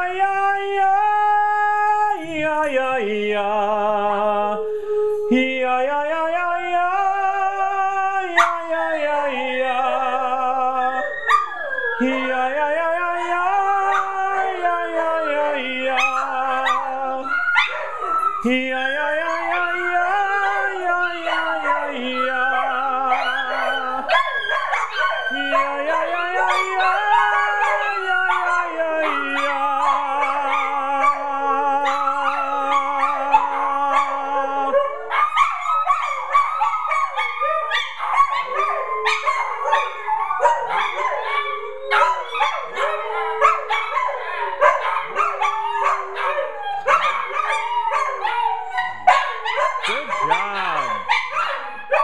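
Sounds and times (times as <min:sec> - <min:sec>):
dogs howling: 0:00.0 - 0:02.8, 0:04.0 - 0:52.0
dogs yipping: 0:08.4 - 0:08.6, 0:10.8 - 0:12.2, 0:13.2 - 0:14.6, 0:16.0 - 0:52.0.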